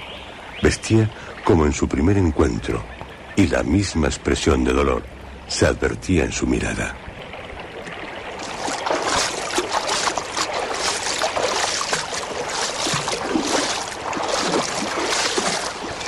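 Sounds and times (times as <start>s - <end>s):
water splashing in shallow stream: 6.8s - 16.0s.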